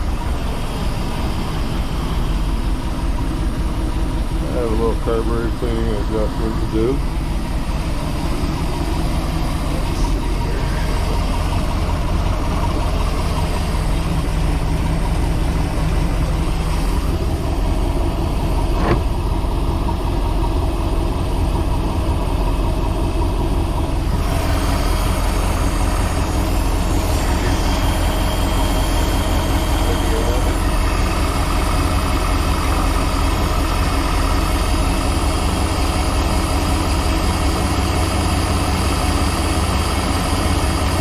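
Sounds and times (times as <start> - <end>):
boat engine idling: 0.0 - 41.0.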